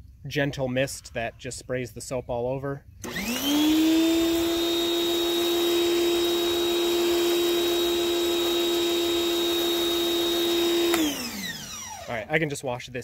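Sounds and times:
pressure washer motor humming: 0:03.0 - 0:12.3.

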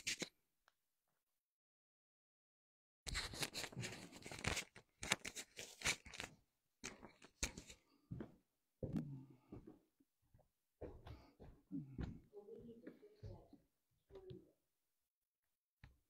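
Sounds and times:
rustling handling noise: 0:03.1 - 0:07.8.

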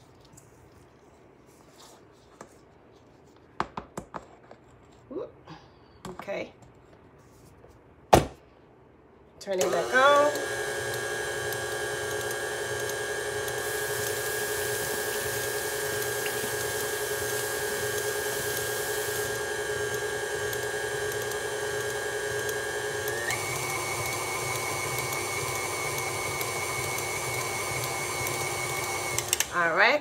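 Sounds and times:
stand mixer beating batter: 0:09.6 - 0:29.7.

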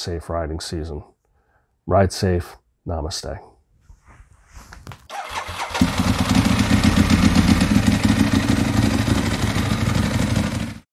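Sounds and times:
motorcycle engine starting and running: 0:05.1 - 0:10.9.

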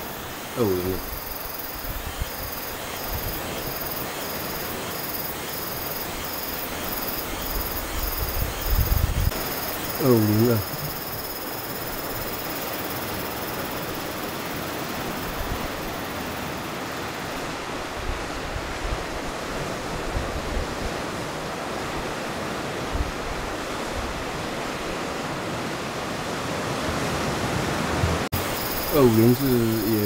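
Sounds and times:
wind and sea rushing: 0:00.0 - 0:30.0
wind buffeting microphone: 0:01.0 - 0:03.7, 0:07.3 - 0:09.5.

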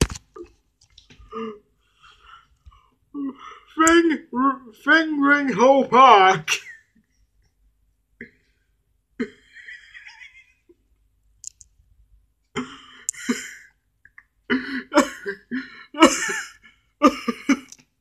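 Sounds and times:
person stifled breathy laughter: 0:09.2 - 0:10.8.

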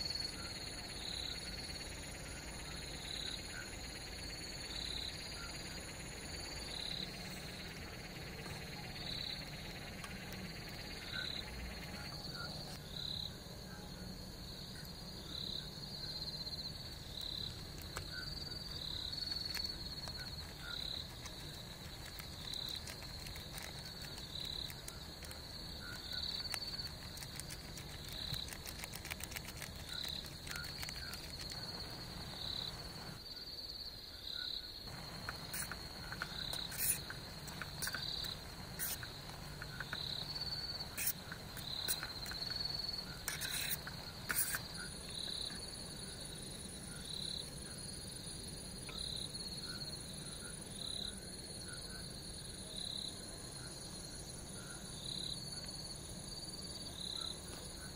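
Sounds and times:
crickets chirping: 0:00.0 - 0:57.9
sharp clicks: 0:19.2 - 0:32.0.

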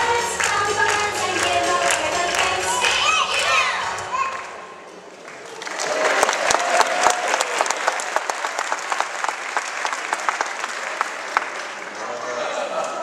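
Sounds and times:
audience applauding: 0:05.2 - 0:13.0.

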